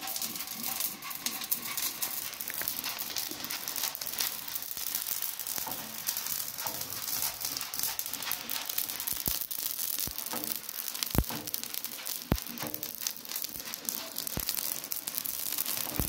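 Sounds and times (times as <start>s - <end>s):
ladle scraping pan: 0.0s - 4.3s
grain hissing and crackling: 0.0s - 16.0s.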